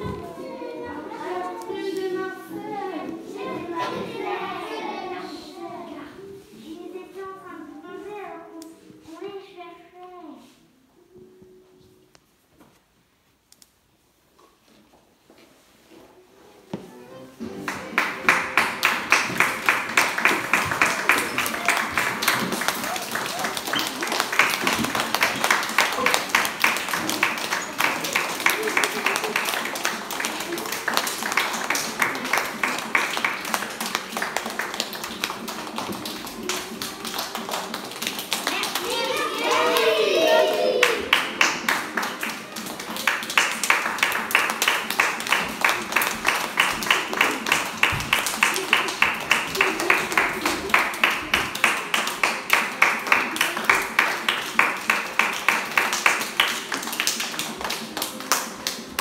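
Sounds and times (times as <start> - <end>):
children clapping: 17.6 - 59.0.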